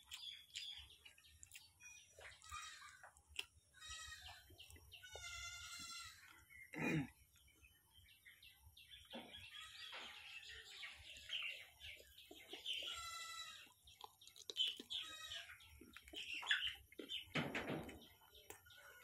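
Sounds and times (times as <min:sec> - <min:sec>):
person chewing food: 0:00.0 - 0:06.6, 0:11.9 - 0:17.0
chickens clucking: 0:09.0 - 0:19.0.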